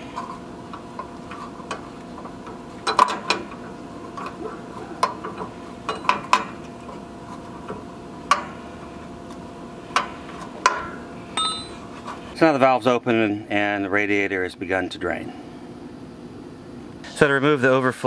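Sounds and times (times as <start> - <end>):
wrench clinking on metal: 11.4 - 11.8.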